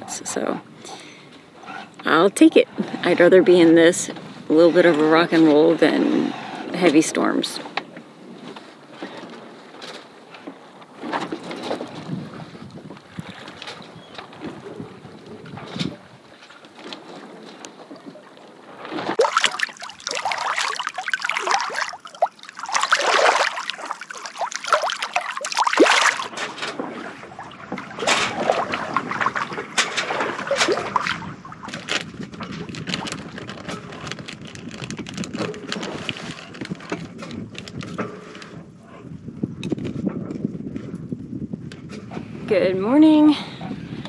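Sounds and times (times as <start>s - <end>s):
water rushing along hull: 0.0s - 38.4s.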